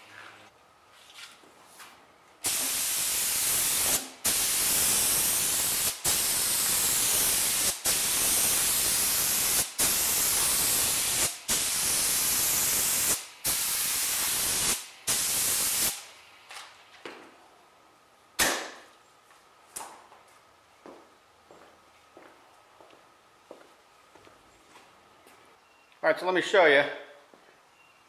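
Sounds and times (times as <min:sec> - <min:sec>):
spray gun hissing: 0:02.4 - 0:16.1.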